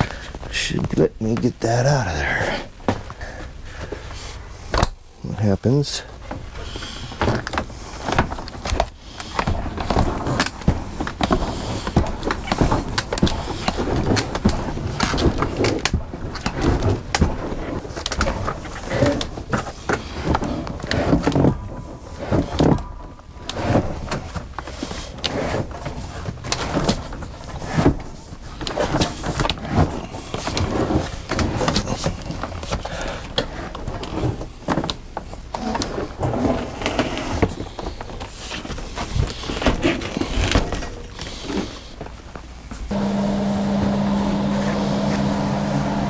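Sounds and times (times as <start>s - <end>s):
refrigerator scraping and knocking: 7.2s - 42.0s.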